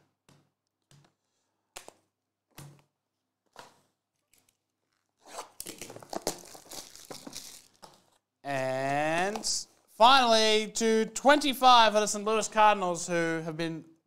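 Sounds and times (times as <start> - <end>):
plastic shrink wrap crinkling: 4.1 - 8.3.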